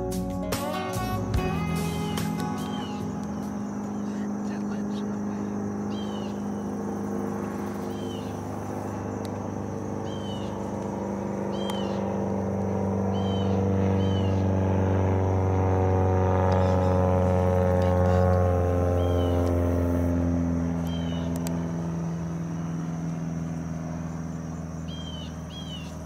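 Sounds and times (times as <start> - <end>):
engine drone: 0.0 - 26.0
bird chirping: 2.0 - 6.7, 7.4 - 8.5, 10.0 - 10.7, 11.5 - 12.1, 13.1 - 14.5, 20.8 - 21.4, 24.8 - 26.0.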